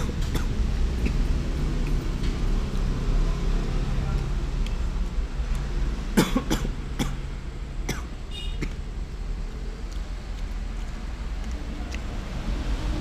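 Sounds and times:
person coughing: 0:06.2 - 0:07.2, 0:07.9 - 0:08.8.

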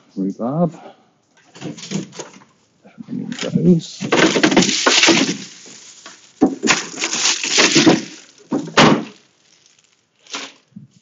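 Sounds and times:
kitchen items clattering: 0:01.5 - 0:02.4, 0:03.2 - 0:10.6.

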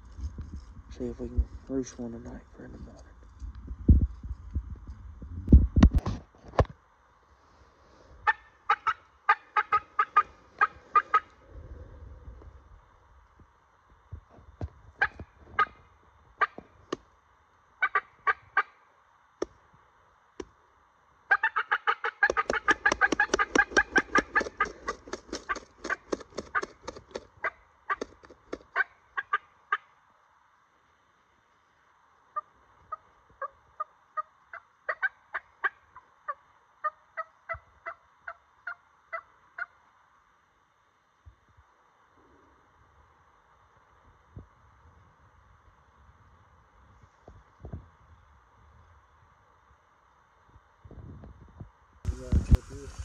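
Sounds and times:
turkey clucking: 0:08.2 - 0:11.4, 0:21.3 - 0:29.9, 0:32.4 - 0:39.7.

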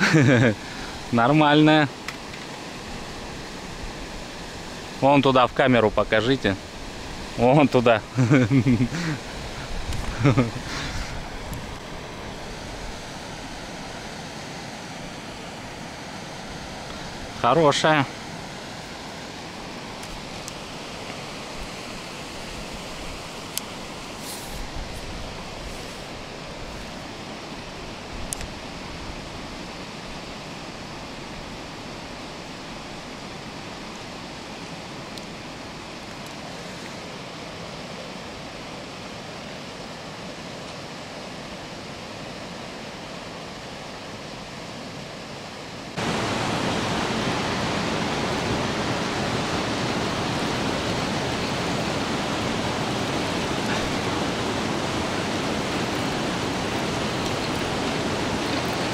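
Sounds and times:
steady rushing noise: 0:00.0 - 0:33.3, 0:45.3 - 0:58.9
small click: 0:28.3 - 0:28.5.

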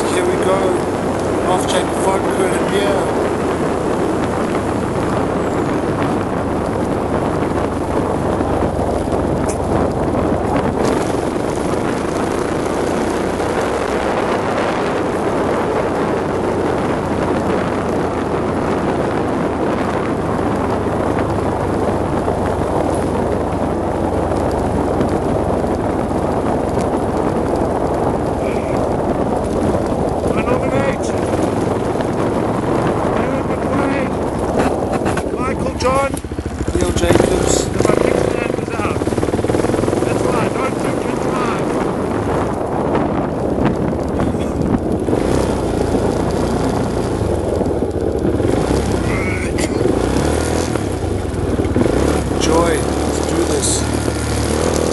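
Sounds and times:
motorcycle engine running: 0:00.0 - 0:54.9
wind rushing over microphone: 0:00.0 - 0:54.9.

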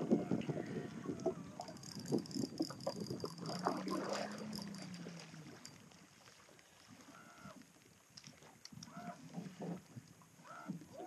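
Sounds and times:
low hum: 0:00.7 - 0:06.3.

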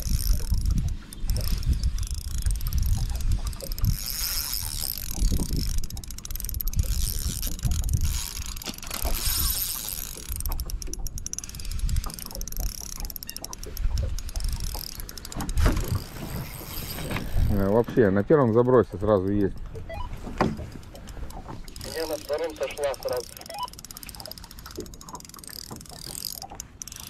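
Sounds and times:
wind rumble on microphone: 0:00.0 - 0:09.7, 0:15.5 - 0:18.0
fishing reel ticking: 0:00.0 - 0:20.1, 0:20.7 - 0:27.0.

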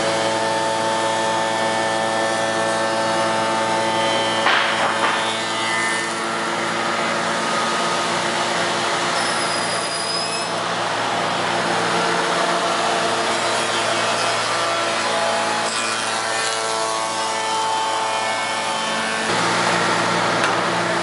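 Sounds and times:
machine motors humming: 0:10.6 - 0:21.0.

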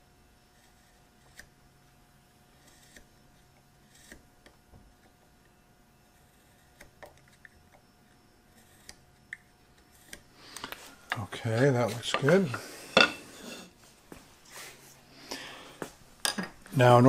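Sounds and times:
knife scratching on wood: 0:00.5 - 0:01.5, 0:02.5 - 0:03.1, 0:03.8 - 0:04.3.

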